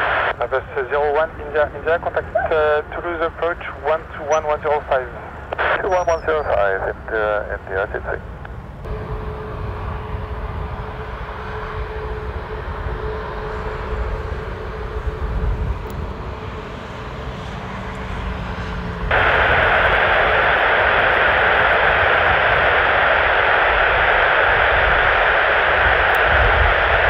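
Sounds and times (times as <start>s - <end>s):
jet engines at low power: 0.0s - 27.0s
loud steady hiss: 19.1s - 27.0s.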